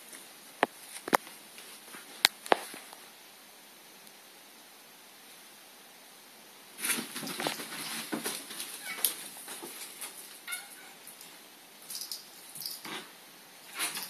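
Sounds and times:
cat and dog scuffling: 0:06.7 - 0:14.0.

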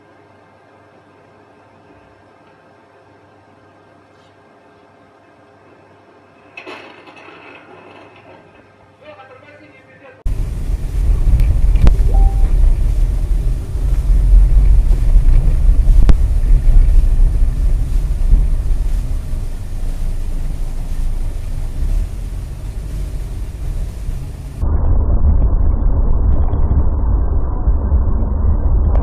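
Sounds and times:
car driving on snowy road: 0:10.3 - 0:24.6.

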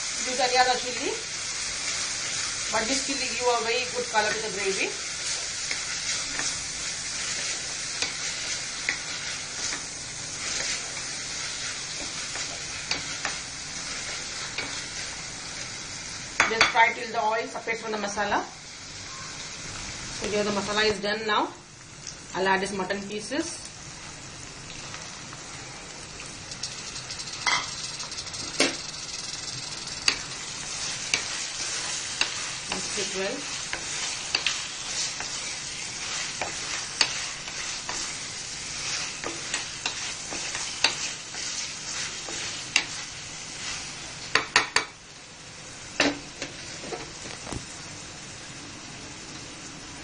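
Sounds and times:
masala sizzling in oil: 0:00.0 - 0:50.0
spatula scraping and tapping pan: 0:29.7 - 0:38.2, 0:38.8 - 0:43.0, 0:43.6 - 0:45.0.

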